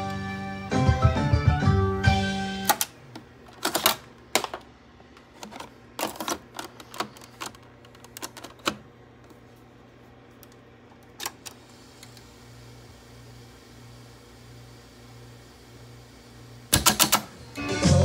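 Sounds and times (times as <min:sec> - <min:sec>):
tape cartridge clicks and clunks: 0:02.6 - 0:08.9, 0:10.5 - 0:11.6, 0:16.7 - 0:17.3.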